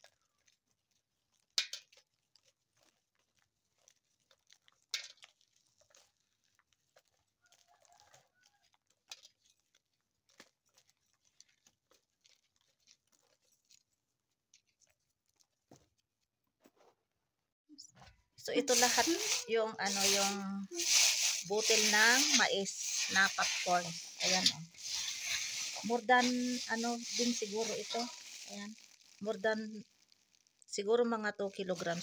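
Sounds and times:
kernels crackling: 0.0s - 16.3s, 18.4s - 32.0s
popcorn kernels dropping into tray: 1.6s - 1.9s, 4.9s - 5.3s, 18.7s - 29.6s.

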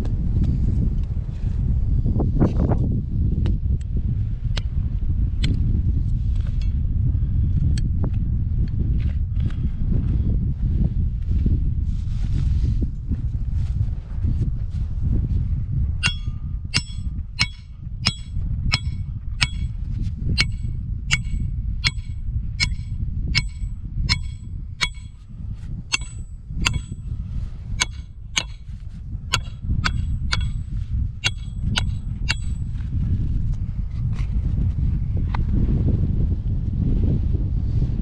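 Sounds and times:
hammer clanging on metal stake: 16.0s - 19.8s, 20.4s - 25.2s, 25.9s - 27.0s, 27.8s - 32.7s.

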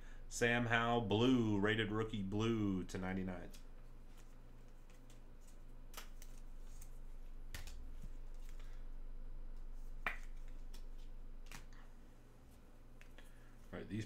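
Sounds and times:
low steady hum: 0.0s - 14.0s
trading cards clicking and snapping: 4.8s - 8.8s.

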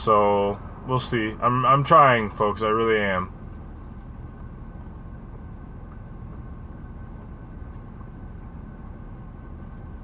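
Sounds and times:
high differential whine: 0.0s - 10.0s
van drivetrain and road drone: 0.0s - 10.0s.

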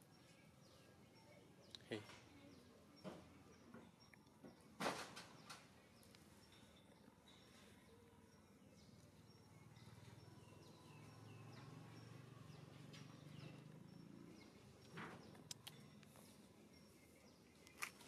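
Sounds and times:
small birds chirping: 0.0s - 18.0s
sharp clicks: 15.3s - 16.1s.

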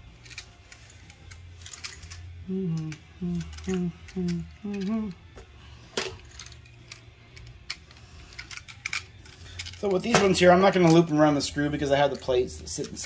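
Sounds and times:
man humming: 2.4s - 5.4s.

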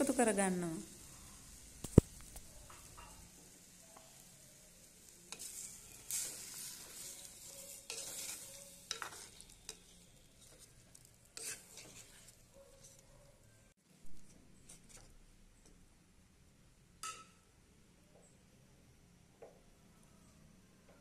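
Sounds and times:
faint sizzle of liquid: 0.0s - 17.6s
ladle scraping in clay pot: 7.0s - 10.7s, 11.4s - 13.0s.

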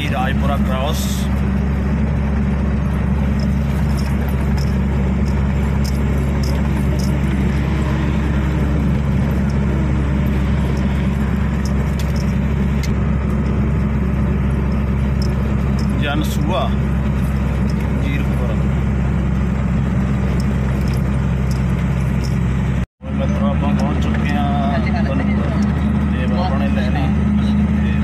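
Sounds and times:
road noise: 0.0s - 28.0s
truck engine droning: 0.0s - 28.0s
faint clicks and rattles: 2.4s - 18.6s, 20.0s - 22.5s.

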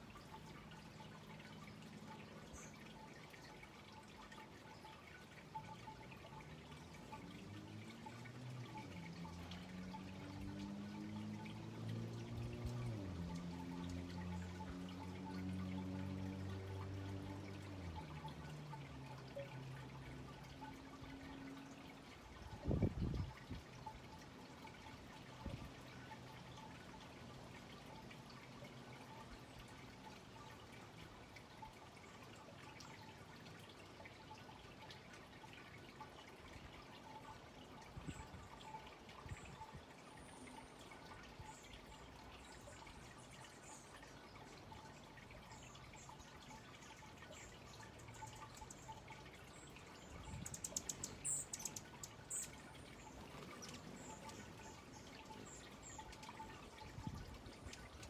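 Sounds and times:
hummingbird chip notes: 38.4s - 58.0s.

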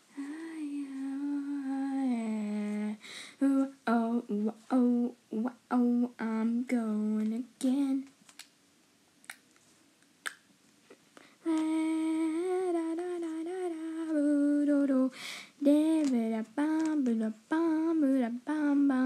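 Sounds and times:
faint clicks: 8.0s - 8.6s, 11.2s - 11.8s, 15.8s - 17.3s.

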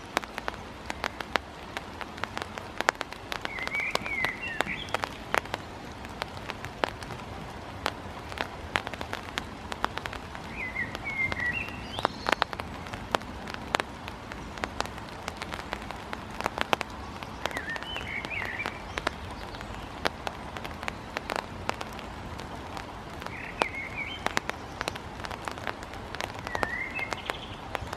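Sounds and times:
bird warbling call: 3.4s - 5.1s, 10.5s - 12.5s, 17.1s - 19.9s, 23.3s - 25.0s, 26.4s - 27.6s.

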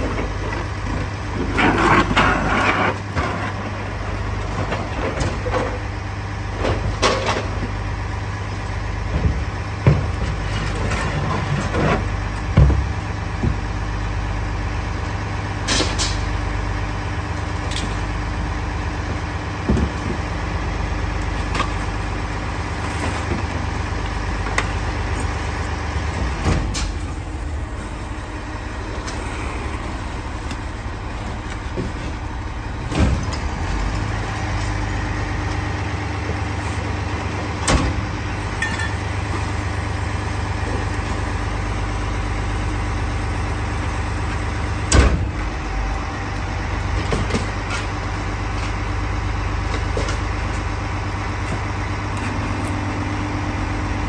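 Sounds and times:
diesel truck engine idling: 12.0s - 54.0s.

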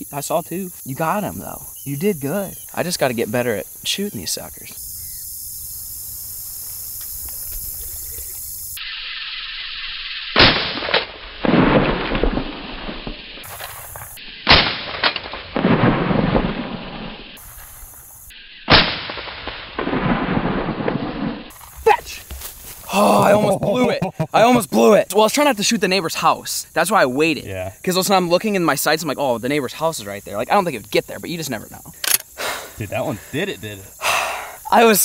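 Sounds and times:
shotgun shots: 10.4s - 12.7s, 13.4s - 16.7s, 18.7s - 21.0s
faint echo crack with rumbling tail: 14.6s - 17.2s.

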